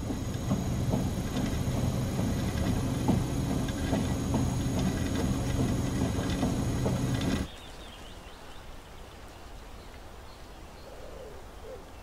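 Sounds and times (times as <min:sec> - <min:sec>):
low mechanical rumble: 0:00.0 - 0:07.5.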